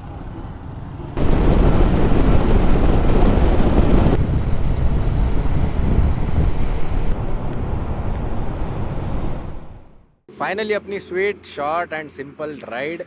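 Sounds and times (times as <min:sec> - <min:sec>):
wind rushing over microphone: 0:01.2 - 0:10.0.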